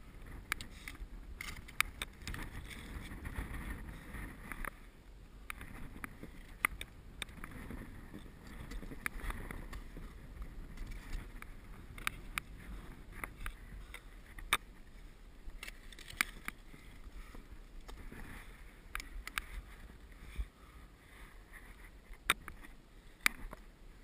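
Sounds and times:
ice axe and crampons clicking: 0.3s - 4.8s, 5.5s - 14.7s, 15.5s - 18.3s.

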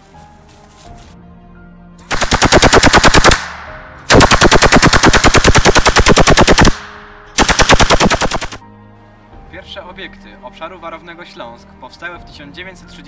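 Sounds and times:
machine gun firing bursts: 2.1s - 3.5s, 4.1s - 8.6s.

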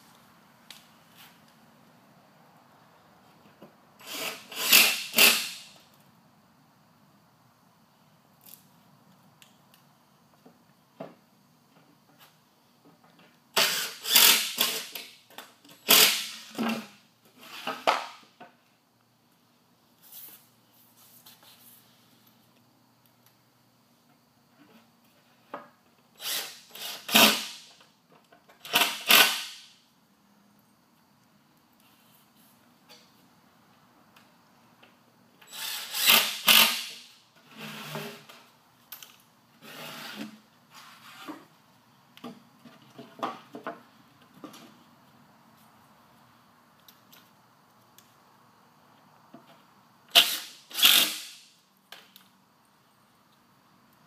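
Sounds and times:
cordless drill driving screws: 4.0s - 5.6s, 13.6s - 15.0s, 26.2s - 27.5s, 35.5s - 37.0s, 50.1s - 51.4s.

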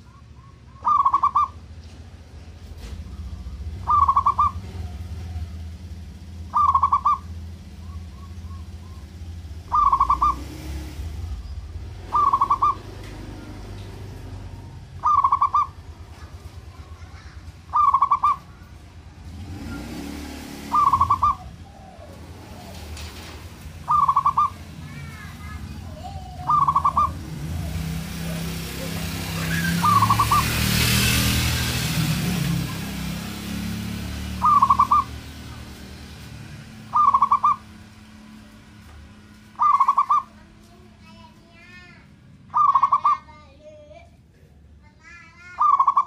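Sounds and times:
dove trilled cooing: 0.0s - 1.6s, 3.1s - 11.4s, 12.0s - 13.7s, 14.5s - 16.2s, 17.0s - 18.7s, 20.6s - 30.6s, 34.3s - 35.4s, 36.8s - 37.8s, 39.6s - 40.4s, 42.5s - 43.3s, 45.5s - 46.0s.

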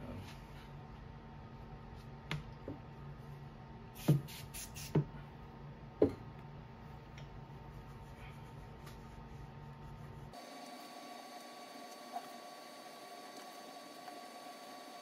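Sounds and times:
aerosol can spraying: 4.0s - 5.0s.

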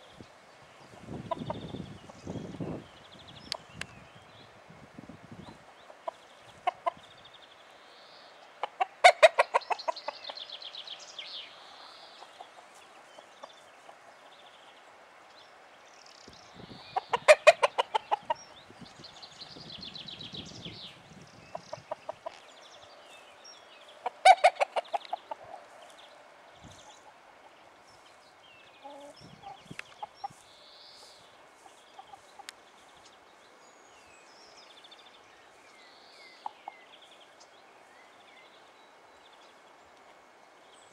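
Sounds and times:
faint songbirds chirping: 0.0s - 40.9s
cockerel clucking: 1.3s - 1.7s, 5.7s - 7.0s, 8.6s - 10.4s, 16.9s - 18.5s, 21.5s - 22.4s, 24.0s - 25.6s.

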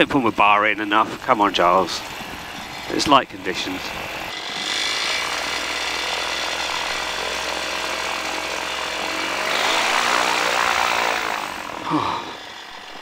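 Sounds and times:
microlight engine and propeller: 0.0s - 13.0s.

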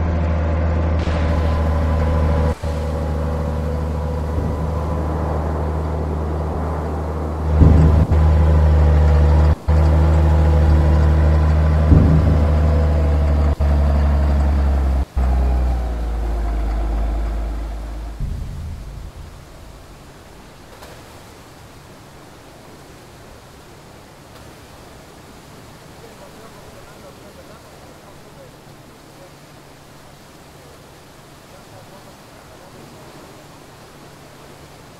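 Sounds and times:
heavy machinery droning: 0.0s - 20.7s.

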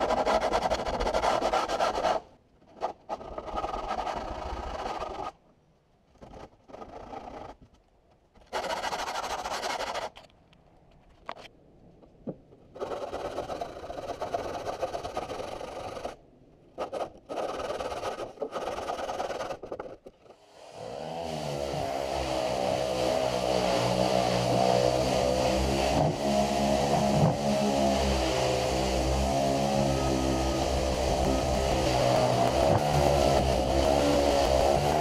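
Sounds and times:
scratchy rubbing on wood: 0.0s - 5.4s, 6.2s - 7.7s, 8.4s - 10.2s, 12.8s - 16.2s, 16.8s - 20.3s
orbital sander motor whining: 20.5s - 35.0s.

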